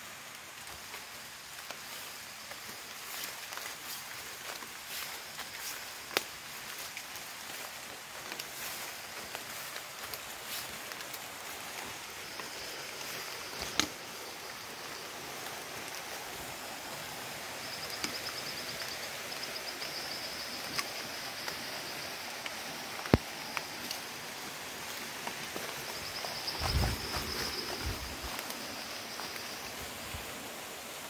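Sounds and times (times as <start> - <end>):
steady hiss: 0.0 - 31.0.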